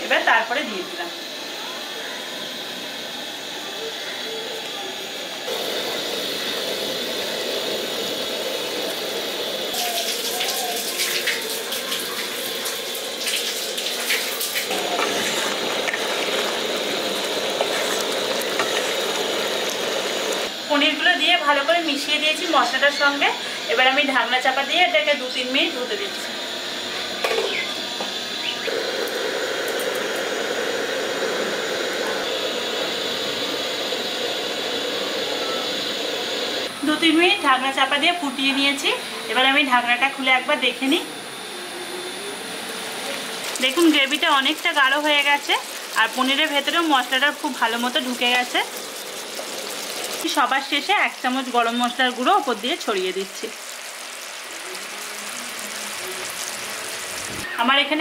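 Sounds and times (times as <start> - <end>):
gas burner hissing: 0.0 - 58.0
gravy bubbling in a pan: 14.6 - 20.5, 43.2 - 56.6.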